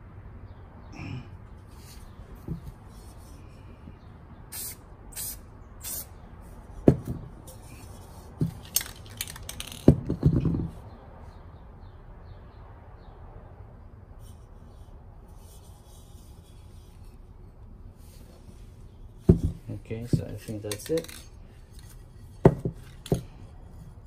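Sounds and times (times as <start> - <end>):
aerosol spray can hissing: 4.5 - 6.1.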